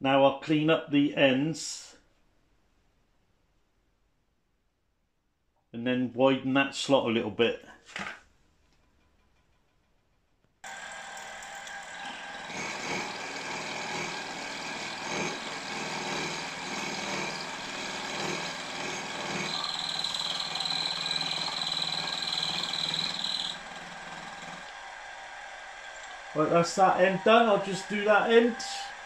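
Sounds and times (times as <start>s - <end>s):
milling machine cutting metal: 10.7s - 24.7s
high-pitched cutting whine: 18.4s - 24.6s.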